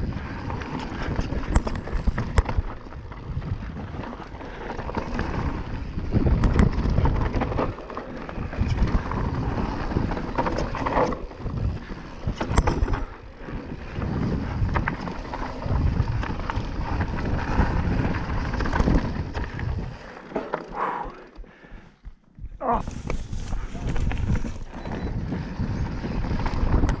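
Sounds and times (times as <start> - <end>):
bike rattling over bumps: 0.0 - 27.0
wind buffeting microphone: 0.0 - 27.0.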